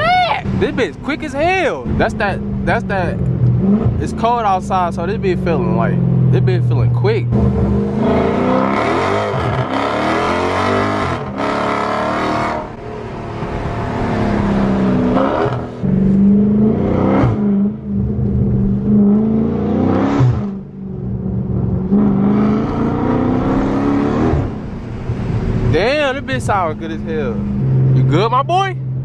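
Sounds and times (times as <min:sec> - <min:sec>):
transmission shifting up: 0:00.0 - 0:11.9
car engine accelerating hard: 0:00.0 - 0:29.0.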